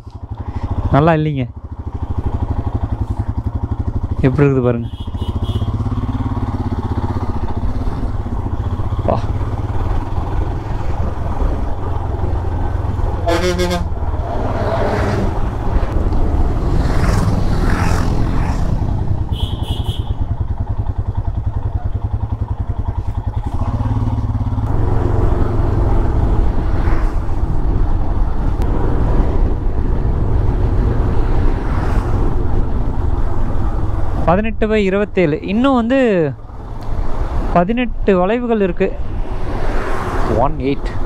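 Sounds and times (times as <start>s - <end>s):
motorcycle engine running: 0.0s - 38.5s
horn honk: 4.8s - 6.0s, 13.2s - 14.0s, 19.2s - 20.3s
wind rumble: 5.9s - 38.0s.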